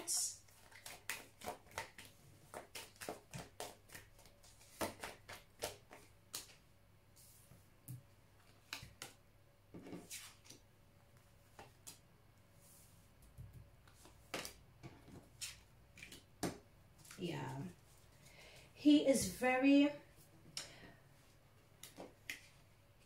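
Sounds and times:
cards being shuffled: 0:00.5 - 0:06.6, 0:08.4 - 0:09.2, 0:13.2 - 0:17.2, 0:21.8 - 0:22.6.

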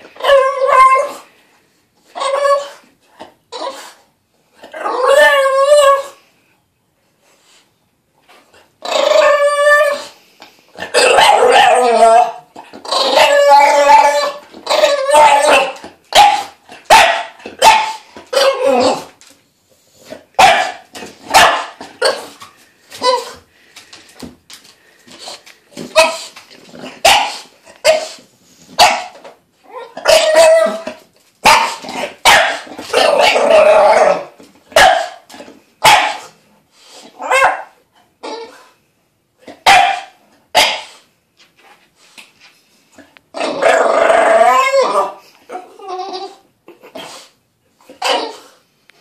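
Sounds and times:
puppy barking and yapping: 0:10.8 - 0:19.1, 0:20.4 - 0:23.4, 0:25.8 - 0:36.4, 0:37.2 - 0:38.7, 0:39.5 - 0:41.0
puppy complaining calls: 0:10.8 - 0:19.1, 0:28.8 - 0:35.2, 0:43.3 - 0:46.4.

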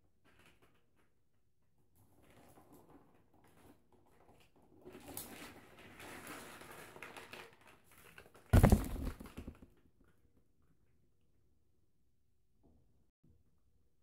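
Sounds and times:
loud knock with rattle: 0:08.6 - 0:09.6
rustling: 0:08.6 - 0:09.6.

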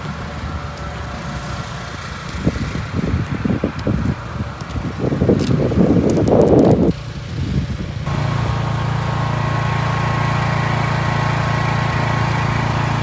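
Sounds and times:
engine idling: 0:06.8 - 0:13.0.

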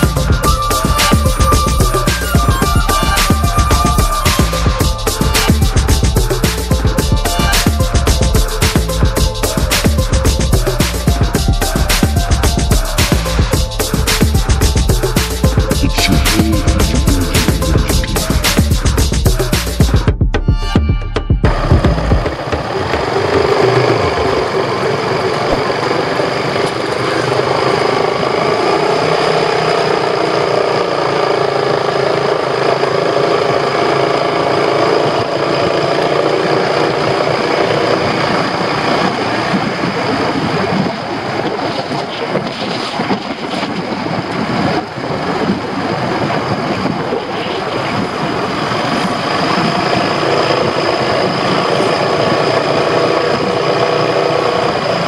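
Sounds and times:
scooter engine running: 0:00.0 - 0:19.9, 0:21.5 - 0:41.7, 0:47.1 - 0:55.0
wind rushing on microphone: 0:35.1 - 0:55.0.

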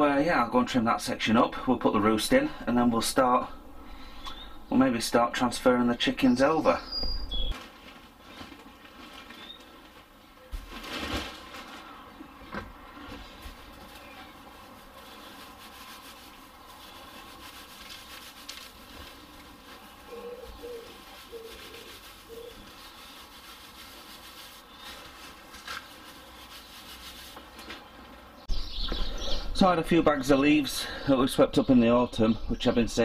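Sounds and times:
wood shavings rustling: 0:06.4 - 0:12.1, 0:13.0 - 0:28.3.

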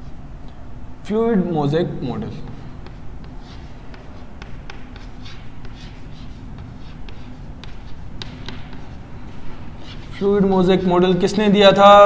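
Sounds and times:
chalk tapping and scratching: 0:02.2 - 0:11.5.

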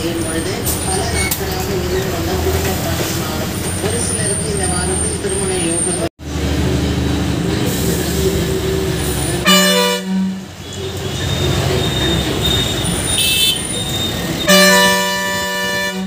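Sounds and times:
bus engine running: 0:00.0 - 0:16.0
road noise: 0:00.0 - 0:16.0
bus horn blast: 0:09.3 - 0:13.8, 0:14.4 - 0:16.0.

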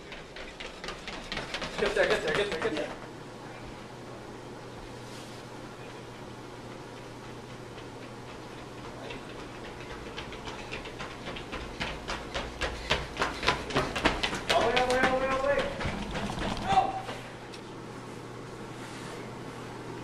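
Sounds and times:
running footsteps on tiled floor: 0:00.0 - 0:03.3, 0:05.8 - 0:17.5
low steady hum: 0:00.0 - 0:20.0.

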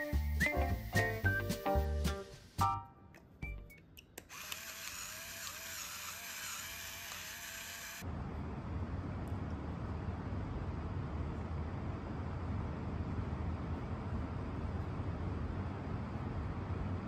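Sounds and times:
electric pepper grinder whirring: 0:04.3 - 0:08.1.

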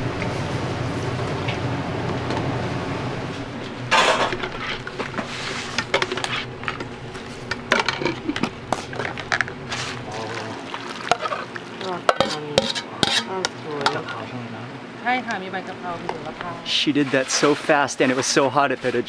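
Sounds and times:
gas stove burner roaring: 0:00.0 - 0:14.2
metal ladle knocking saucepan: 0:12.0 - 0:14.0.

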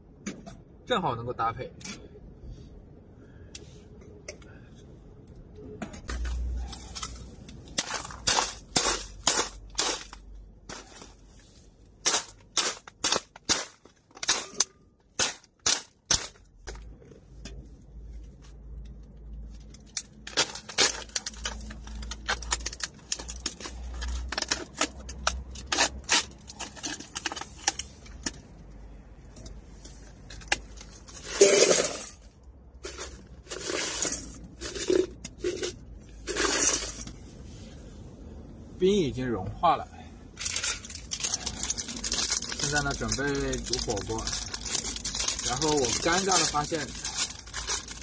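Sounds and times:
ice clattering into metal bowl: 0:31.2 - 0:32.2.

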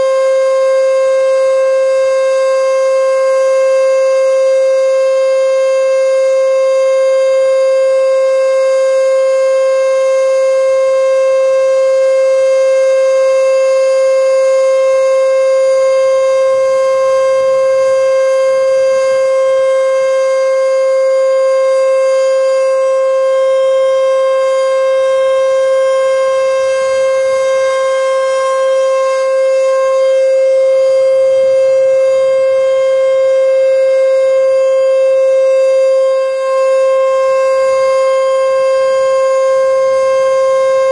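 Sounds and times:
warning siren steady tone: 0:00.0 - 0:40.9.

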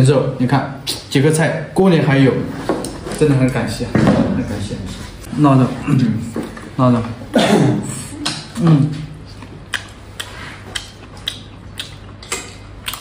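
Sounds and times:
chewing: 0:09.3 - 0:13.0
chopsticks clicking against bowl: 0:09.7 - 0:13.0.

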